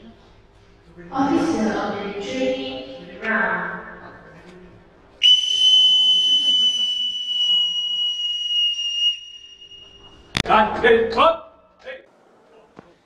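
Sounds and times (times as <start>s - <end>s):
shrill bosun's pipe note: 5.2s - 10.4s.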